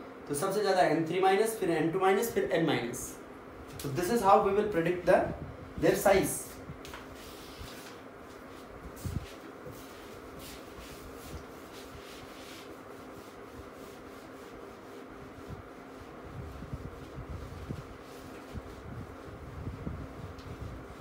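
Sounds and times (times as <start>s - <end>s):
steady background hum: 0.0s - 21.0s
duster rubbing across whiteboard: 7.0s - 21.0s.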